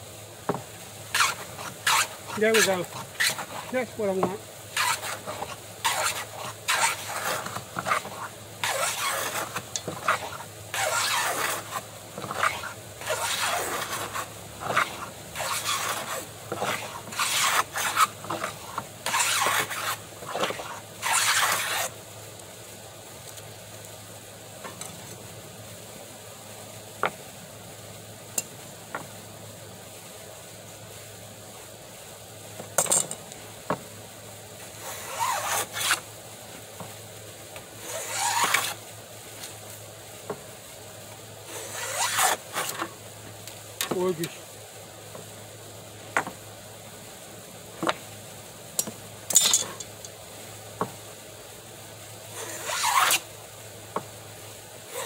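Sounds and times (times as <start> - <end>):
hand plane strokes on wood: 1.1 - 21.9, 34.8 - 36.0, 37.8 - 38.8, 41.5 - 42.9, 52.3 - 53.2.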